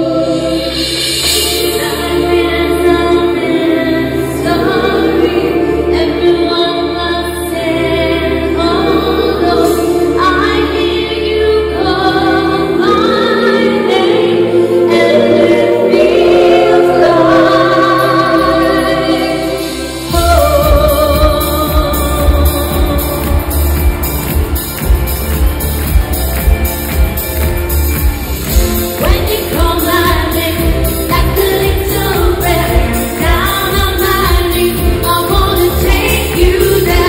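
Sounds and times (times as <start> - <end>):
backing choir singing: 0.0 - 37.0
woman singing lead: 0.0 - 37.0
band with drums and bass: 20.1 - 37.0.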